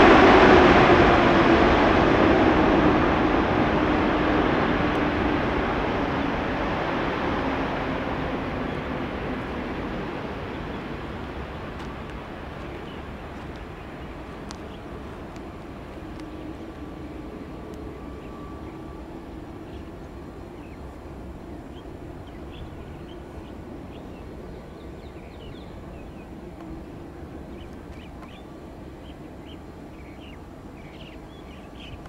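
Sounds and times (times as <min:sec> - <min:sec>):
jet engines rumbling: 0:00.0 - 0:32.0
small birds chirping: 0:10.7 - 0:16.4, 0:21.7 - 0:26.7, 0:27.5 - 0:32.0.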